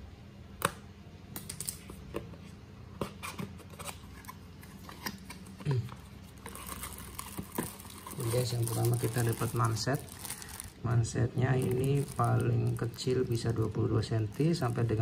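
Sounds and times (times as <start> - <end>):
plastic wrapping crinkling: 4.8 - 15.0.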